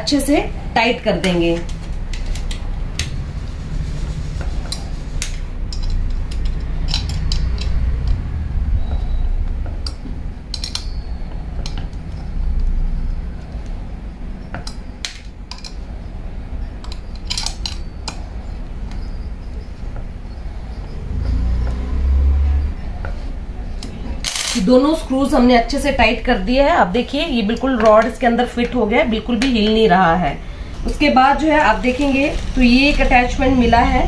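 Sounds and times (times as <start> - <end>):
metal clinks and ticks: 4.7 - 8.2, 9.8 - 12.8.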